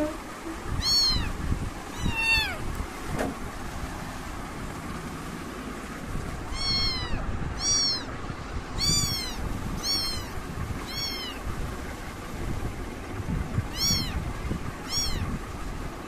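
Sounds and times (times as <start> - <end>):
kitten meowing: 0.7 - 2.7, 6.5 - 8.2, 8.8 - 11.5, 13.7 - 14.2, 14.8 - 15.3.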